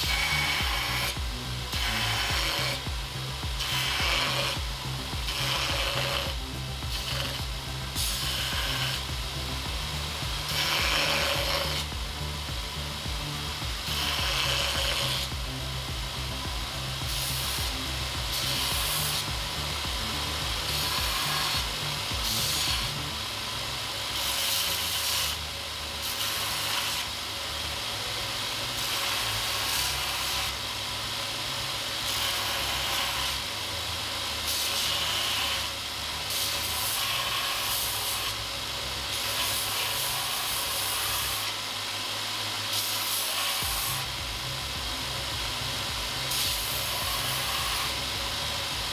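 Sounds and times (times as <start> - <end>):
metal bar grinding on belt: 0.0 - 23.2, 34.5 - 41.6, 42.5 - 48.9
belt grinder motor running: 0.0 - 48.9.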